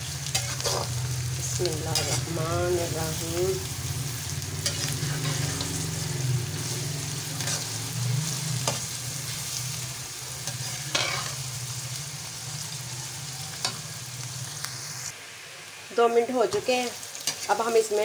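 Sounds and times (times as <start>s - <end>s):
onions sizzling in oil: 0.0s - 18.0s
metal spatula scraping a pan: 0.2s - 1.0s, 1.6s - 2.5s, 4.6s - 9.6s, 10.4s - 11.6s.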